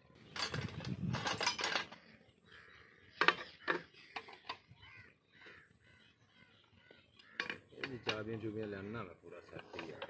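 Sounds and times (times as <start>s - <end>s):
metal spanners clattering in tray: 0.4s - 2.0s.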